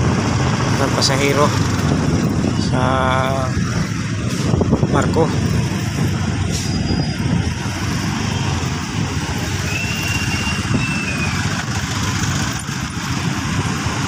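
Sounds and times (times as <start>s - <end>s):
motorcycles passing close: 0.0s - 14.0s
traffic engine and road noise: 0.0s - 14.0s
faint high whistle: 9.6s - 11.4s.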